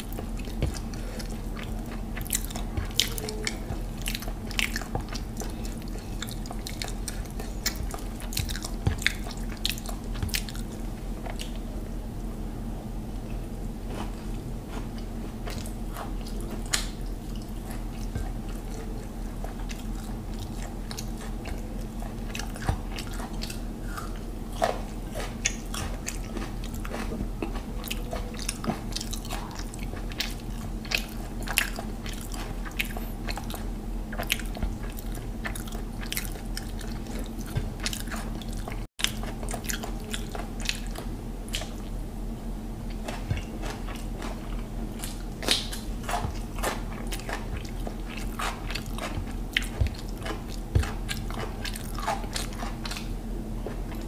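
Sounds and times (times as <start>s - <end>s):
wet chewing and mouth smacks: 0.0s - 11.6s, 13.9s - 42.0s, 42.8s - 54.0s
steady low hum: 0.0s - 54.0s.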